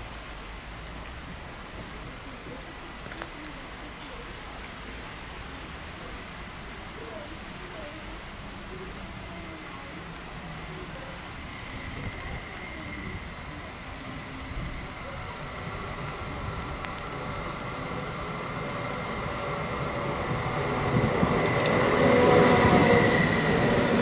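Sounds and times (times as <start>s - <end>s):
electric train running noise: 10.0s - 24.0s.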